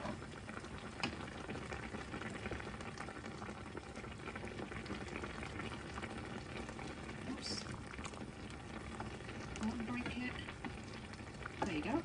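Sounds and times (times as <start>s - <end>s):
sauce bubbling in a pan: 0.0s - 12.0s
wooden spoon stirring: 7.2s - 12.0s.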